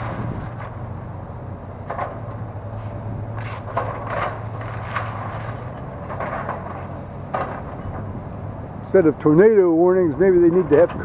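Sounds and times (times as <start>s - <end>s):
excavator diesel engine running: 0.0s - 11.0s
roofing and timber breaking: 1.8s - 8.1s.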